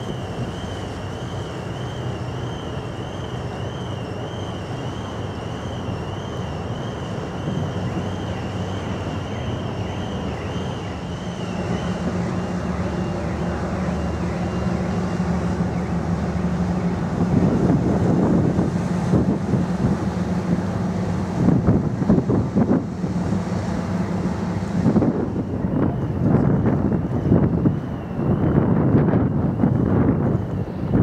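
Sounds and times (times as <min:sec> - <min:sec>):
ferry engines droning: 0:00.0 - 0:31.0
wind buffeting microphone: 0:11.4 - 0:31.0.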